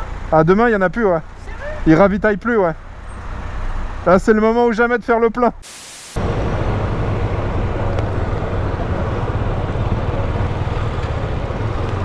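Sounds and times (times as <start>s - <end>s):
motorcycle on cobblestones: 6.2s - 12.0s.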